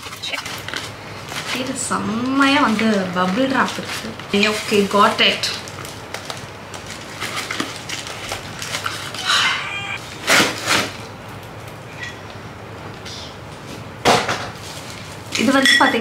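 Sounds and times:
bubble wrap crackling and rustling: 0.0s - 9.2s
plastic packaging squeaks: 7.3s - 10.0s.

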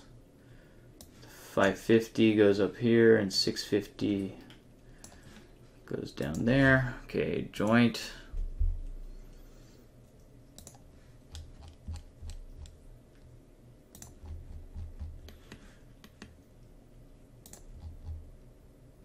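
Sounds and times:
faint steady hum: 0.0s - 19.0s
dull low thumps: 8.4s - 9.0s
computer mouse clicks: 10.6s - 12.8s, 13.9s - 16.4s, 17.4s - 18.2s.

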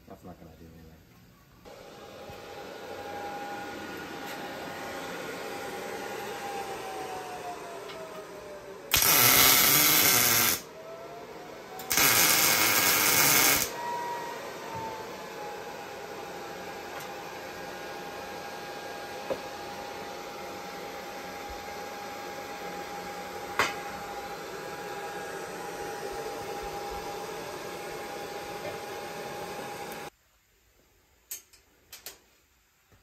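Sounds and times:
welder crackling hiss: 8.9s - 10.6s, 11.8s - 13.7s.

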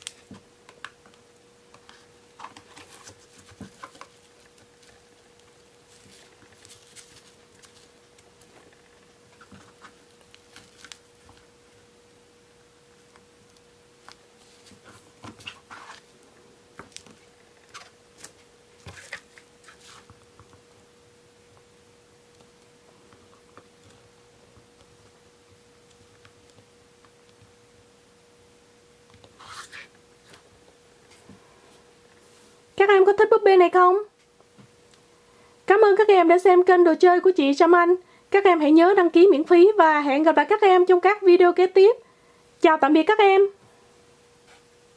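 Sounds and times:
faint steady hum: 0.0s - 44.9s.

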